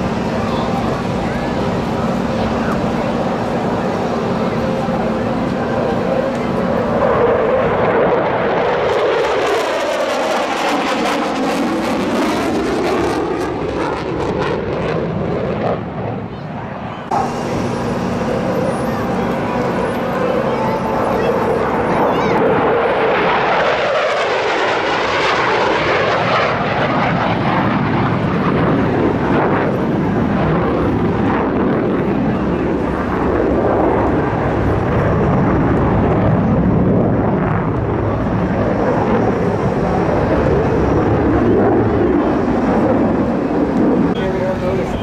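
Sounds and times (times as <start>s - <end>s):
jet engines roaring: 0.0s - 45.0s.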